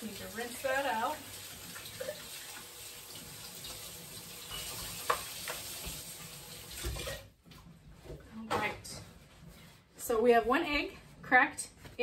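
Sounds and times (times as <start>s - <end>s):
tap water running: 0.0s - 7.6s.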